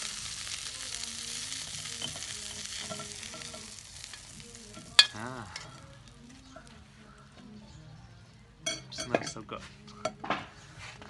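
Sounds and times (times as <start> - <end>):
food sizzling in hot oil: 0.0 - 6.7.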